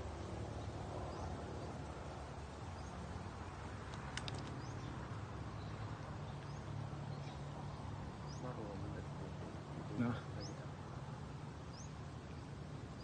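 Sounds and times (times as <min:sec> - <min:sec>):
sharp clicks: 0:03.8 - 0:04.7.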